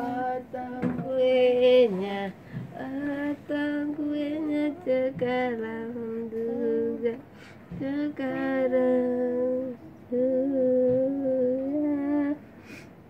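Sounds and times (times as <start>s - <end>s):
person humming a tune: 2.7s - 12.4s.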